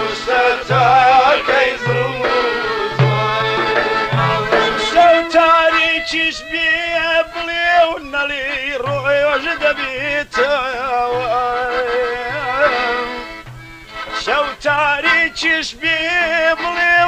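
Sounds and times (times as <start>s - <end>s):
instrumental backing: 0.0s - 17.0s
man singing: 0.0s - 17.0s
low beat: 0.1s - 6.1s, 12.2s - 15.0s.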